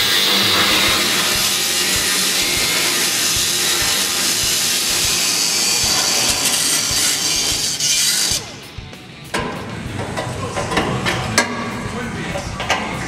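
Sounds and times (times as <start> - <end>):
cut-off tool grinding metal: 0.0 - 8.6.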